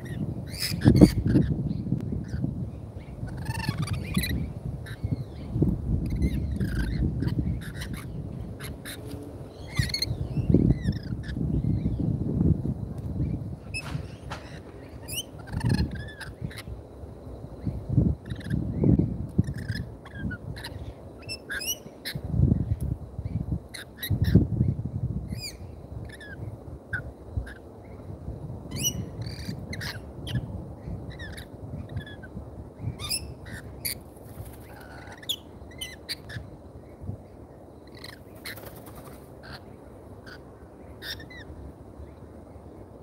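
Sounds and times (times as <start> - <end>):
lorikeets chirping and squawking: 0.0 - 12.1, 13.2 - 16.8, 17.6 - 24.7, 25.3 - 28.1, 28.7 - 42.8
wind rumble on microphone: 0.0 - 43.0
pigeon wingbeats: 38.4 - 39.3.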